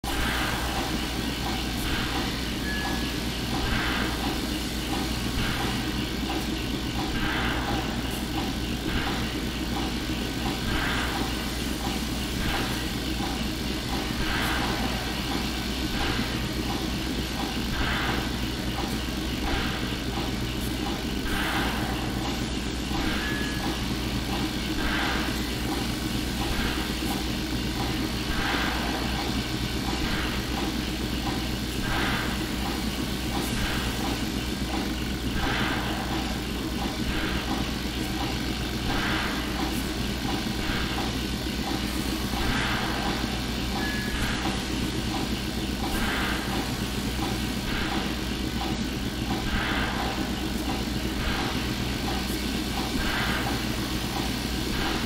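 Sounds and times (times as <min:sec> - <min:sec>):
low mechanical drone: 0:00.0 - 0:55.0
soft pulse: 0:42.4 - 0:44.7.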